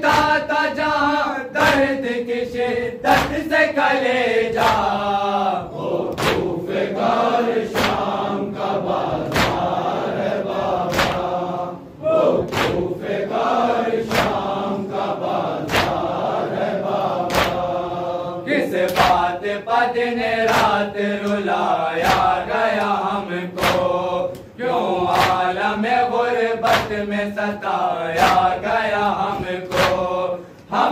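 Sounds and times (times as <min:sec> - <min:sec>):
hands slapping chests: 0:00.0 - 0:00.4, 0:03.1 - 0:03.5, 0:04.5 - 0:05.0, 0:06.1 - 0:06.5, 0:07.6 - 0:08.1, 0:09.2 - 0:09.8, 0:10.8 - 0:11.4, 0:12.4 - 0:13.0, 0:14.0 - 0:14.6, 0:15.6 - 0:16.2, 0:17.2 - 0:17.7, 0:18.8 - 0:19.3, 0:20.4 - 0:23.0, 0:23.6 - 0:24.5, 0:25.1 - 0:25.5, 0:26.6 - 0:27.0, 0:28.2 - 0:30.2
men chanting in chorus: 0:00.0 - 0:30.9.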